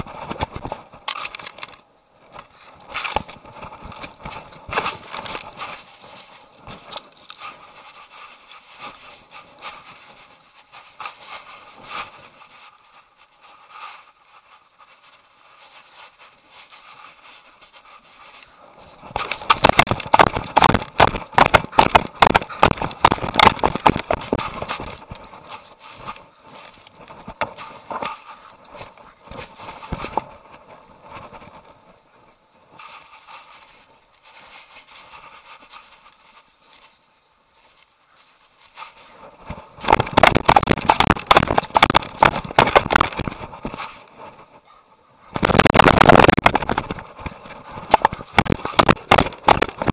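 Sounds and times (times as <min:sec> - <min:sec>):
camera rubbing against brush: 0:00.0 - 0:31.7, 0:38.4 - 0:44.7, 0:45.3 - 0:49.9
rapid scraping and knocking: 0:19.0 - 0:30.3, 0:39.4 - 0:44.6, 0:45.3 - 0:49.9.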